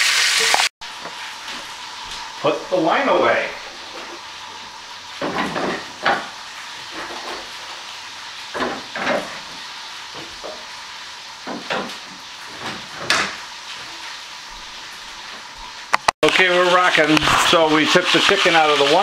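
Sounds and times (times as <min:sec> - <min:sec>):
steady hiss: 0:00.4 - 0:08.6, 0:16.3 - 0:19.0.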